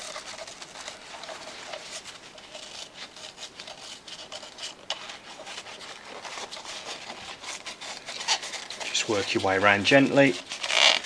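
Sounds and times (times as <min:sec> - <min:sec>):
foam scratching and crackling: 0:00.0 - 0:11.0.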